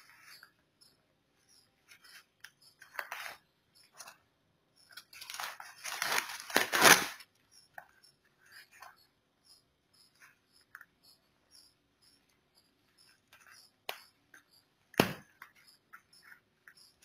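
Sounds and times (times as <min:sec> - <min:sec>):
plastic crinkling: 0:05.0 - 0:07.3
packing tape snipping and tearing: 0:05.2 - 0:07.2.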